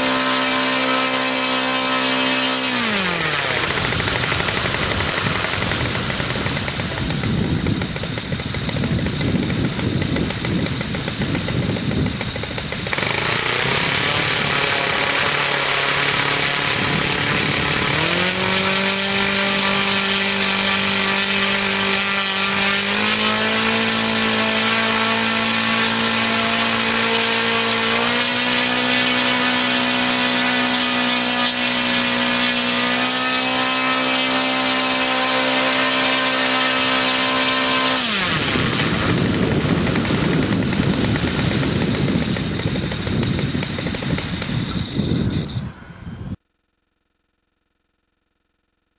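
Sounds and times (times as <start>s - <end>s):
model engine running: 0.0s - 45.7s.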